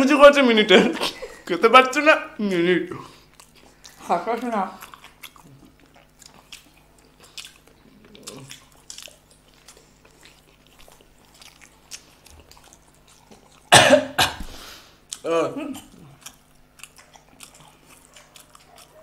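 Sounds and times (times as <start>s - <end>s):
wet chewing mouth smacks: 3.2s - 13.7s, 15.8s - 19.0s
person coughing: 13.7s - 14.6s, 15.2s - 15.9s.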